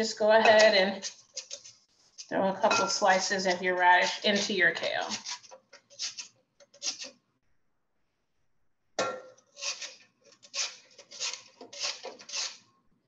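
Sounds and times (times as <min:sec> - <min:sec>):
radish scraping on a metal grater: 0:00.4 - 0:02.3, 0:03.1 - 0:07.1, 0:09.6 - 0:12.7.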